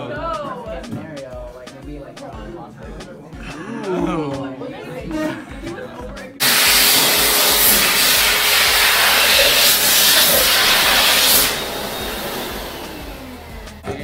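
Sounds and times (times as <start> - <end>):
electric hand dryer blowing: 6.4 - 14.0.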